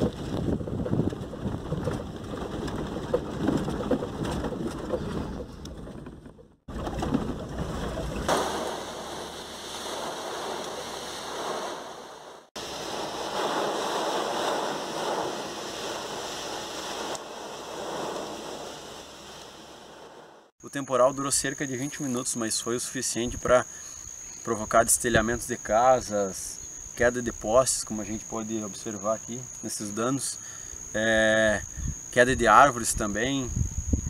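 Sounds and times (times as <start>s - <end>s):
wind buffeting microphone: 0.0s - 8.3s, 31.6s - 34.0s
wind rushing through trees: 8.3s - 20.5s, 30.7s - 34.0s.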